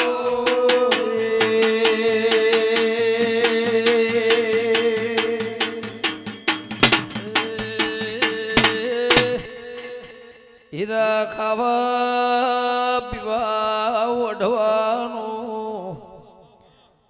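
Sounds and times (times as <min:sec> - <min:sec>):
hand drum beating: 0:00.0 - 0:09.5.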